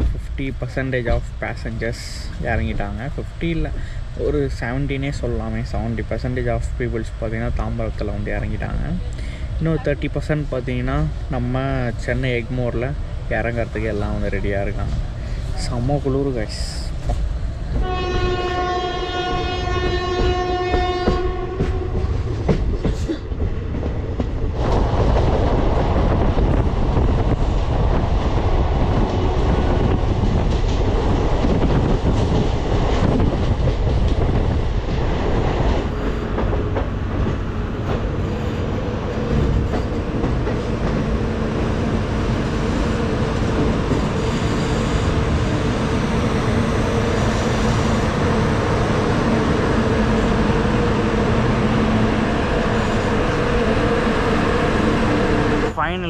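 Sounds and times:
train rumble: 0.0 - 56.0
train wheels clattering over rail joints: 19.8 - 41.7.

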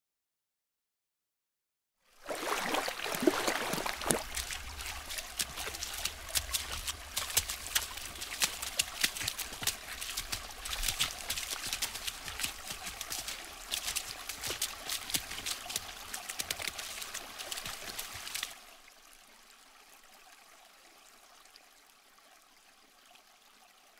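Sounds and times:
water rushing and splashing: 2.2 - 19.4.

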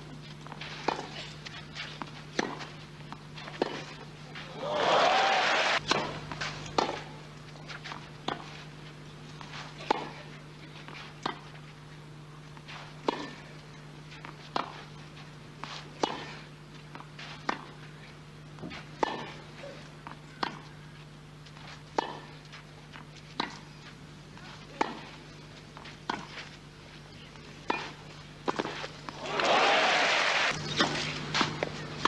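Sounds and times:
steady low hum: 0.0 - 32.0
tennis ball bouncing: 0.4 - 4.1, 5.8 - 7.1, 7.7 - 8.6, 9.4 - 10.2, 10.8 - 11.6, 12.6 - 13.4, 14.2 - 14.9, 15.6 - 17.8, 18.6 - 19.4, 20.0 - 20.8, 21.5 - 23.7, 24.4 - 26.6, 27.6 - 29.5
racquets hitting tennis ball: 0.4 - 11.8, 12.4 - 31.8.

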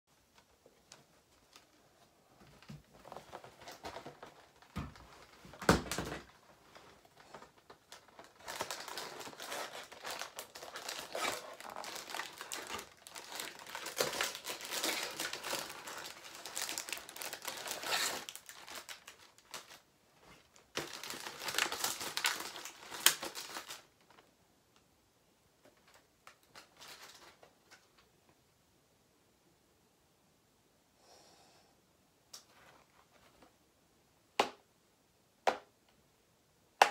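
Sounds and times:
packaging torn and crinkled: 5.2 - 19.8, 20.7 - 24.2.

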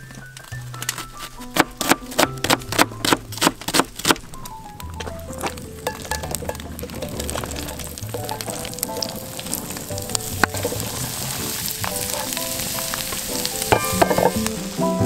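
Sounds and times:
clicks and knocks of pieces dropping: 0.0 - 14.6
vegetables sizzling in a pot: 4.8 - 15.0.

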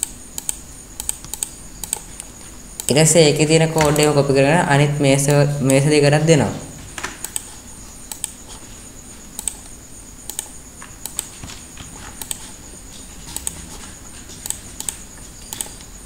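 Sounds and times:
mouse and keyboard clicks: 0.0 - 2.9, 7.0 - 7.5, 8.1 - 8.4, 10.3 - 12.6, 13.3 - 15.9
steady high-pitched whine: 0.0 - 16.0.

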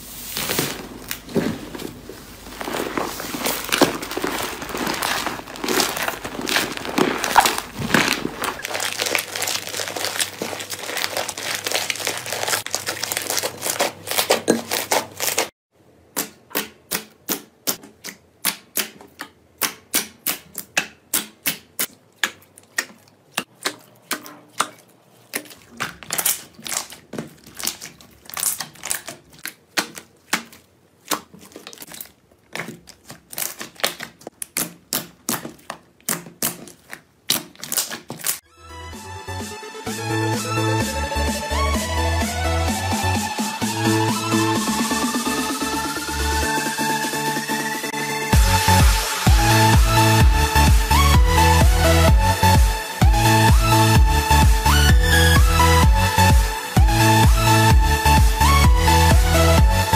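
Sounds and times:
slime crackling as kneaded: 0.2 - 15.5, 16.3 - 38.5.

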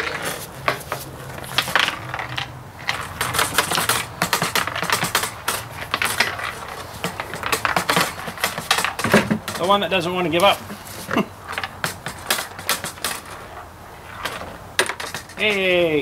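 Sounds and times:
metal washers rattling in tank: 1.4 - 13.4.

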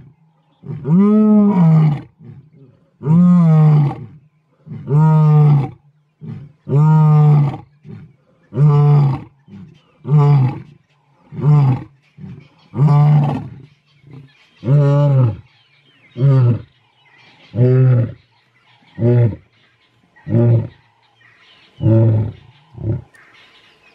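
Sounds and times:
lions roaring: 0.0 - 15.5.

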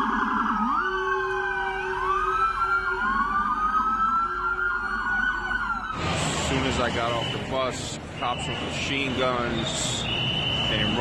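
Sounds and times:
fast siren yelp: 0.0 - 7.6
sirens wailing: 0.0 - 11.0.

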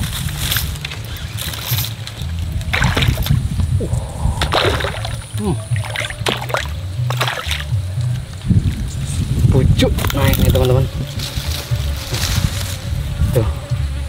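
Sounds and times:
wind rumble on microphone: 0.0 - 14.0
fish splashing in water: 2.7 - 7.8.

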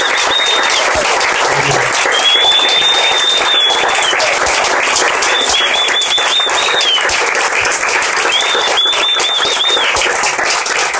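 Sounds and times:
audience applauding: 0.0 - 10.9
shrill warbling whistle: 1.6 - 4.3, 5.2 - 7.1, 8.2 - 10.0.

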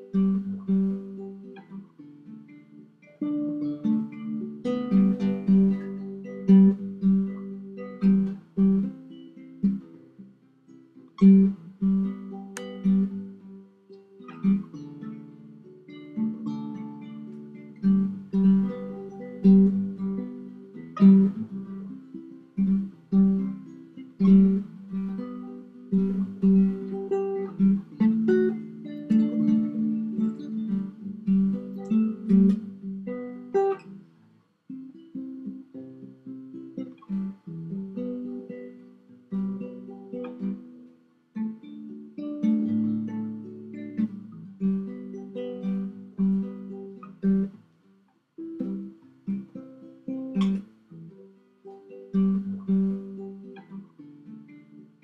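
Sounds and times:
acoustic guitar strumming: 0.0 - 34.1, 34.7 - 55.0.

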